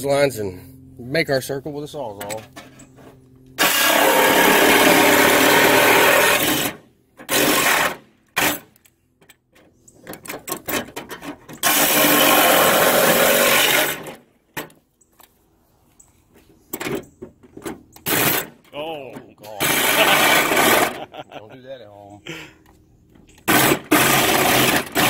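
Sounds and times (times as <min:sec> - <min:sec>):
reciprocating saw cutting sheet steel: 0:03.6 - 0:08.7, 0:11.6 - 0:14.2, 0:19.6 - 0:21.1, 0:23.4 - 0:25.0.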